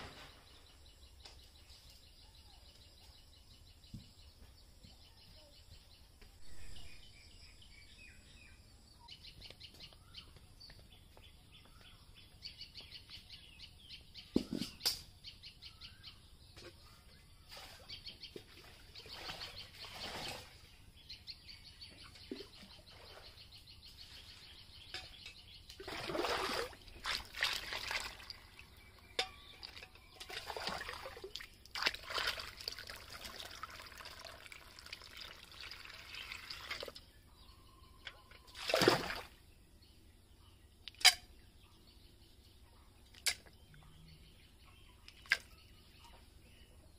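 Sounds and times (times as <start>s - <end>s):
birds chirping: 0.0s - 46.9s
water splashing into metal buckets: 17.5s - 20.7s, 25.0s - 37.0s, 38.1s - 39.4s, 45.2s - 45.5s.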